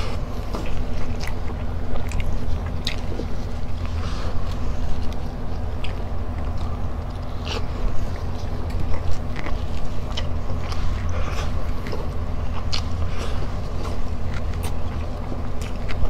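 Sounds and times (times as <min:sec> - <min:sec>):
chewing food: 0:00.0 - 0:16.0
steady low hum: 0:00.0 - 0:16.0.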